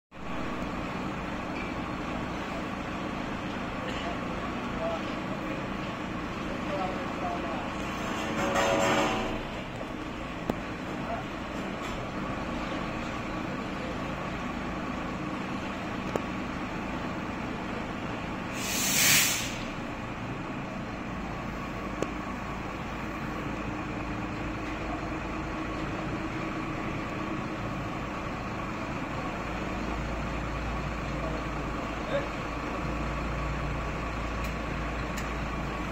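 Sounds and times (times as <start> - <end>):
diesel truck engine running: 0.1 - 35.9
air hiss: 18.5 - 19.8.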